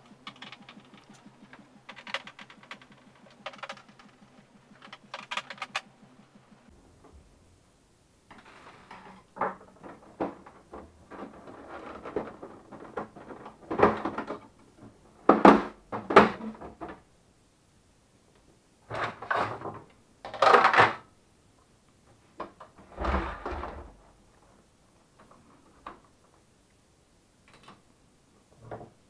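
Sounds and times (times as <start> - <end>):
plastic panels knocking and clattering: 8.9 - 17.1, 18.9 - 21.1.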